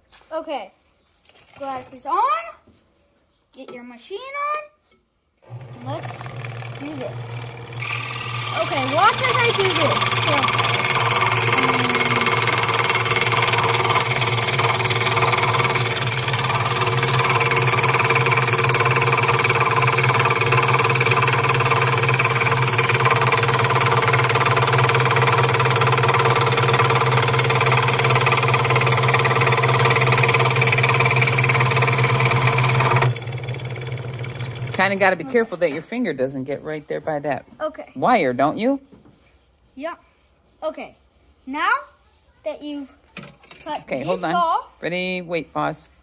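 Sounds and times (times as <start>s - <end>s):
scroll saw cutting wood: 5.4s - 35.5s.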